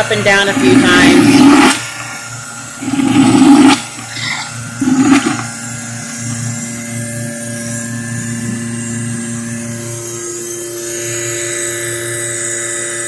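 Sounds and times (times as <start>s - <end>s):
vacuum suction hum: 0.0s - 13.0s
milking machine gulping sucks: 0.2s - 6.5s.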